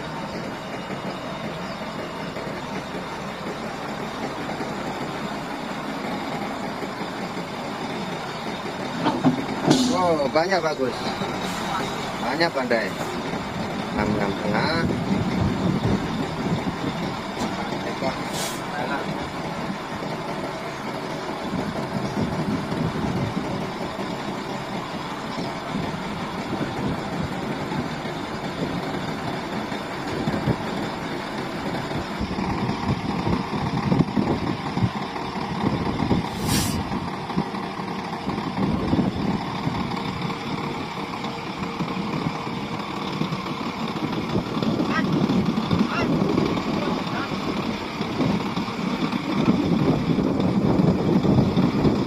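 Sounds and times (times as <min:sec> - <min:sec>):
truck diesel engine idling: 0:00.0 - 0:52.0
sharp hiss of air: 0:18.3 - 0:18.7, 0:36.3 - 0:36.9.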